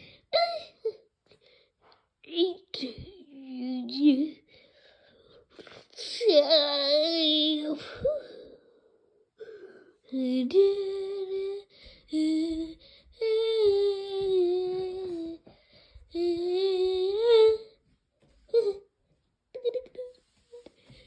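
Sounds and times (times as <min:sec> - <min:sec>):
person singing wordlessly: 0:10.1 - 0:15.5.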